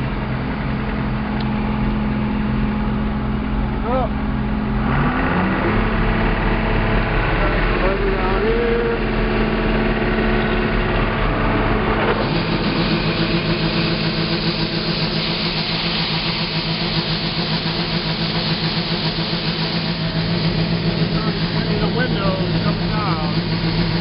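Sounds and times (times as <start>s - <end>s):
combine engine running: 0.0s - 24.0s
corn pouring from auger spout: 12.1s - 24.0s.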